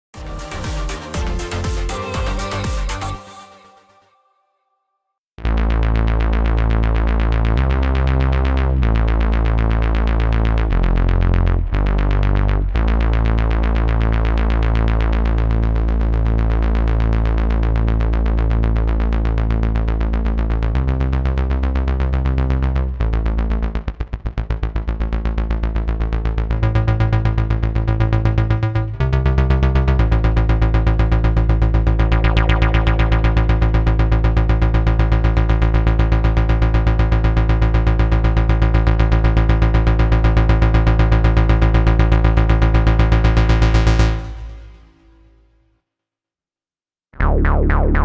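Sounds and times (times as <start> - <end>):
synthesizer bass note: 0.1 - 3.3, 5.4 - 45.4, 47.2 - 48.0
synthesizer arpeggio: 0.2 - 3.4, 30.0 - 35.7, 47.2 - 48.0.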